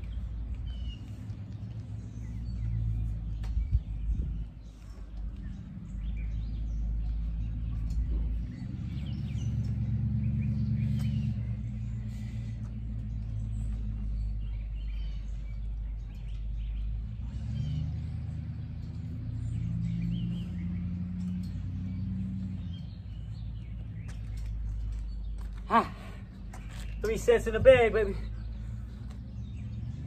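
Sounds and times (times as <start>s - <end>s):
birds chirping: 0.0s - 30.0s
low motor hum: 0.0s - 30.0s.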